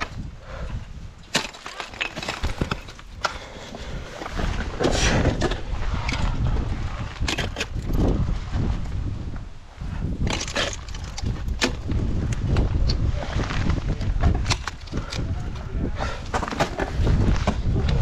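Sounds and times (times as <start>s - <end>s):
low microphone rumble: 0.0s - 18.0s
ice crunching and splintering: 1.2s - 3.5s, 10.2s - 15.1s.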